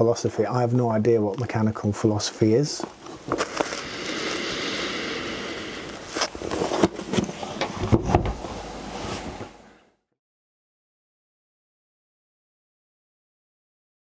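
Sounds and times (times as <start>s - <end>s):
person sniffing through nose: 3.6s - 6.3s.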